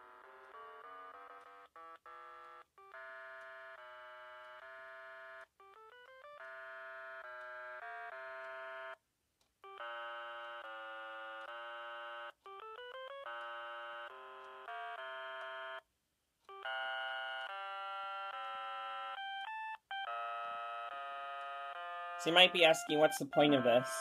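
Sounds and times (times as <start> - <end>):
electronic beeping tune over phone: 16.5 - 24.0.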